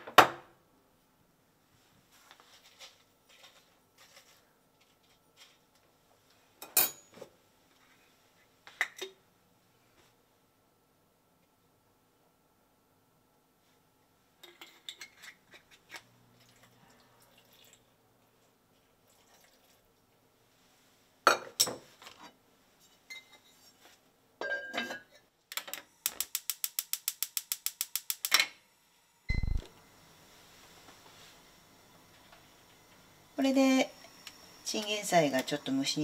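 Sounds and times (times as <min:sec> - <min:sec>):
kitchen timer beep: 0:29.3 - 0:29.7.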